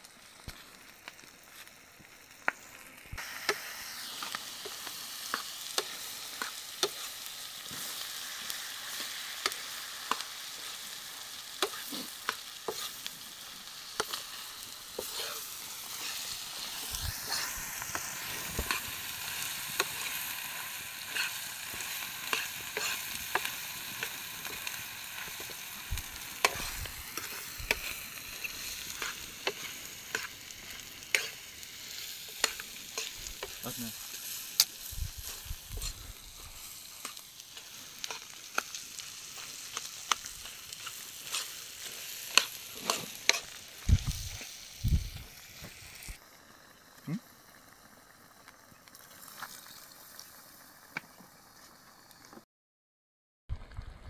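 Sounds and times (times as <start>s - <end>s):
meat sizzling in a pan: 0.0s - 52.4s
metal spoon scraping a pan: 11.6s - 13.0s, 14.0s - 16.3s, 21.0s - 25.6s, 26.4s - 30.4s, 31.0s - 31.4s, 40.8s - 43.6s.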